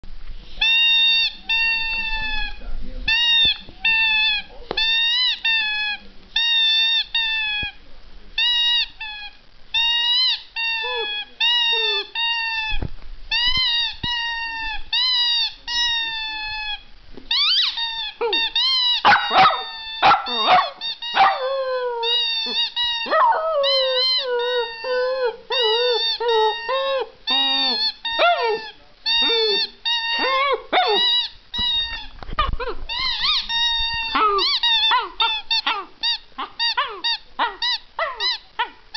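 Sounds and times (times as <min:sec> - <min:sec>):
dog howling: 0:19.0 - 0:31.0, 0:32.4 - 0:38.8.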